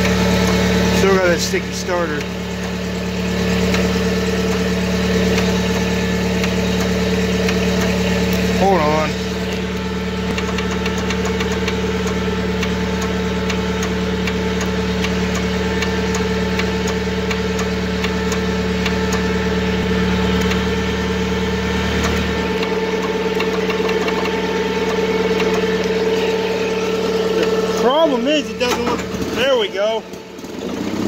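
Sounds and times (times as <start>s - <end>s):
lawn tractor engine humming: 0.0s - 31.0s
light ticking: 2.1s - 2.8s, 3.6s - 4.7s, 5.3s - 8.5s, 9.4s - 19.3s, 20.3s - 20.8s, 22.0s - 27.5s.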